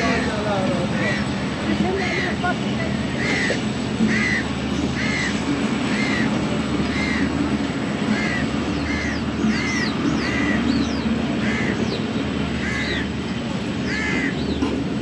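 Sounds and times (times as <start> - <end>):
crows cawing: 0.0 - 1.4, 3.1 - 11.8, 12.6 - 13.1, 13.8 - 14.4
small birds chirping: 8.1 - 14.8.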